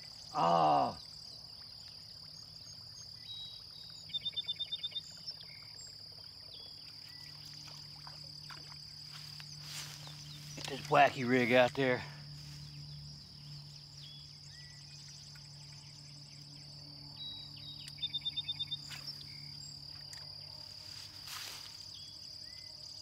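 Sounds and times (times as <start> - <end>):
insects droning: 0.0 - 23.0.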